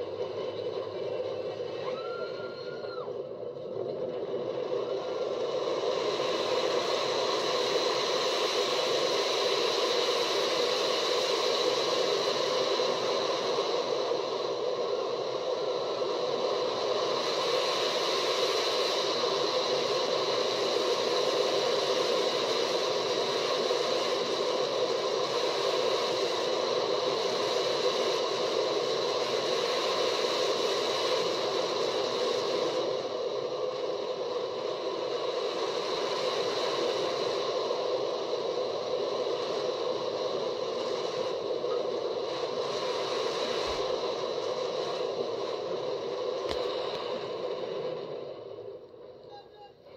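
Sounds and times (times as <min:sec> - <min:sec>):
roller coaster wind and track noise: 0:00.0 - 0:49.9.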